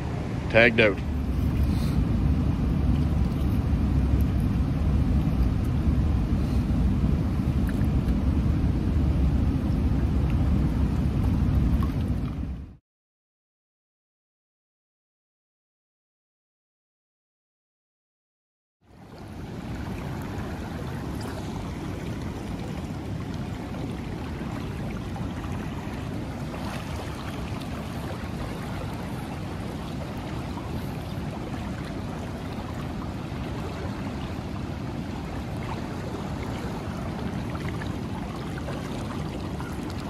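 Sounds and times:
river current rushing: 19.0 - 40.0.

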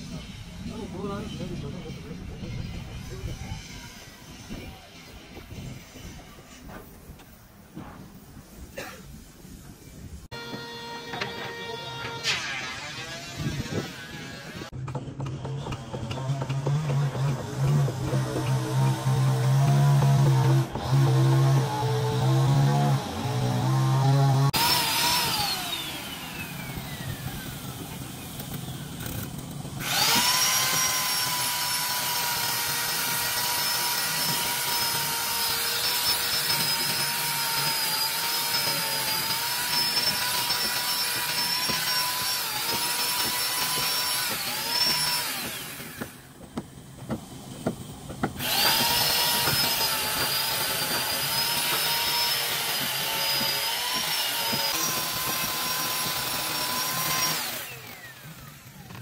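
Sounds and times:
power tool motor whining: 10.3 - 14.7, 15.6 - 59.0.

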